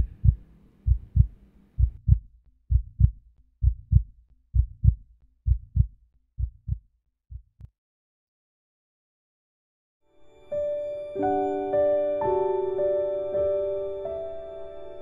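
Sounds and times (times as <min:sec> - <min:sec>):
heartbeat thumps: 0:00.0 - 0:07.7.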